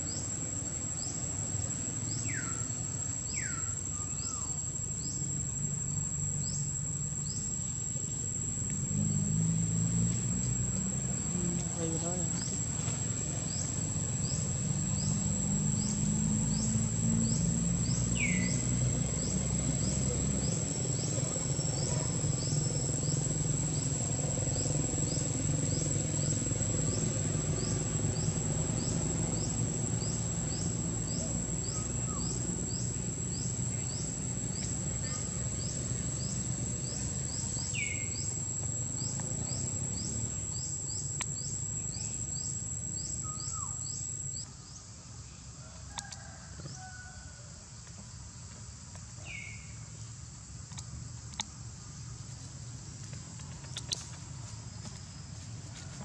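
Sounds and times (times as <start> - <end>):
insects droning: 0.0 - 56.0.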